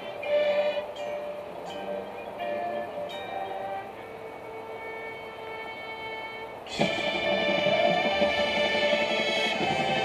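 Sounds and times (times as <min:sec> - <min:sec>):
marching band sustained note: 0:00.0 - 0:10.0.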